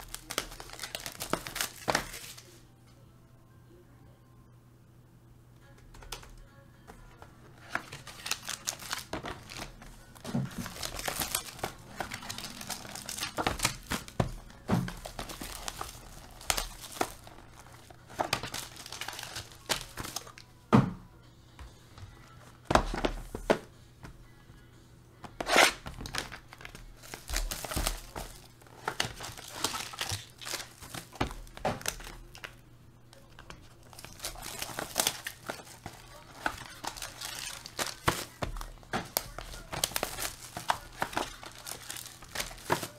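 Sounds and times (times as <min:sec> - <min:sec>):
plastic wrapper tearing and crinkling: 0:00.0 - 0:02.5, 0:07.6 - 0:20.4, 0:25.4 - 0:32.6, 0:33.4 - 0:42.9.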